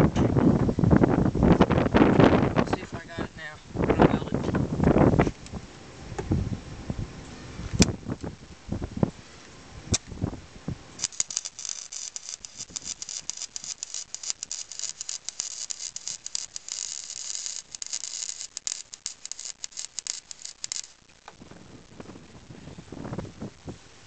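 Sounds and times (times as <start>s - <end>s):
arc welder crackling: 9.9s - 22.5s.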